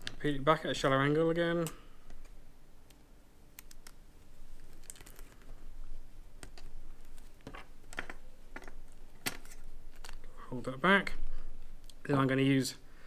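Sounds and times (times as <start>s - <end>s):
tape crackling: 1.6s - 10.4s.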